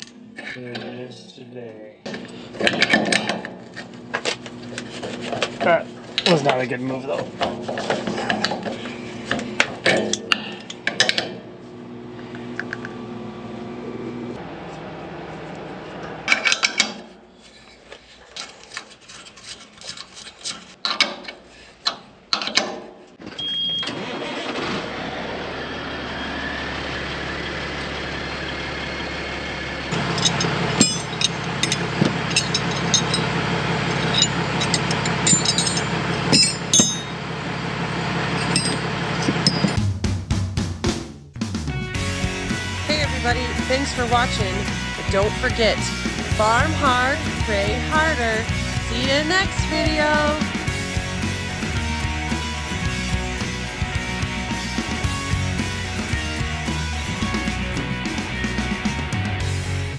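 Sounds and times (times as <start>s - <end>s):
diesel truck engine running: 3.4s - 17.3s, 23.9s - 59.9s
short high beep: 23.4s - 24.0s
clattering: 30.0s - 37.2s, 38.4s - 39.8s
wrench clinking on pipe fitting: 30.1s - 33.3s, 34.0s - 37.2s.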